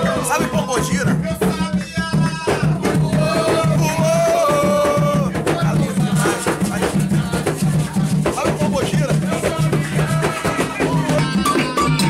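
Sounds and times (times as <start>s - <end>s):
person singing: 0.0s - 8.6s, 9.3s - 12.0s
hand drums beating: 0.0s - 12.0s.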